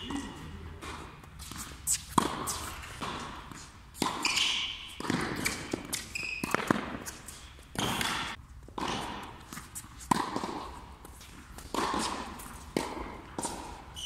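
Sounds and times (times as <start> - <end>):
shoe squeaks on court: 3.6 - 8.3.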